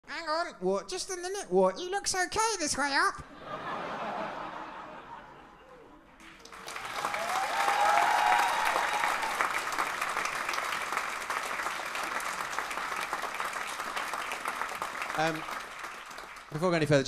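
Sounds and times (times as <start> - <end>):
audience applause: 6.2 - 17.0.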